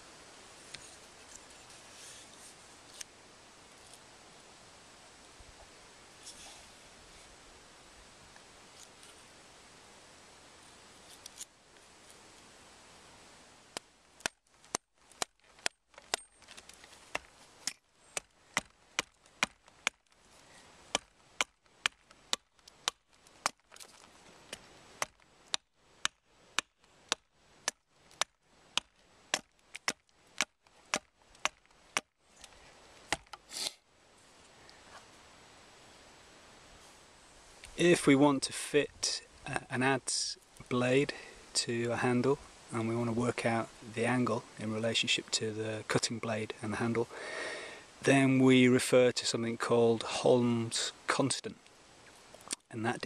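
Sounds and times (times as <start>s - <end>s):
adze chopping wood: 13.7s - 20.1s, 20.9s - 24.1s, 25.0s - 32.1s, 33.1s - 33.4s.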